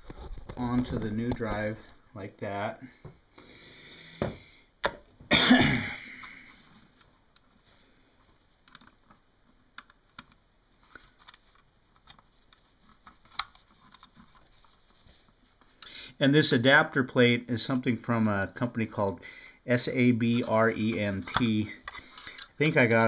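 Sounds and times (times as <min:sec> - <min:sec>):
person coughing: 0:05.3 - 0:06.5.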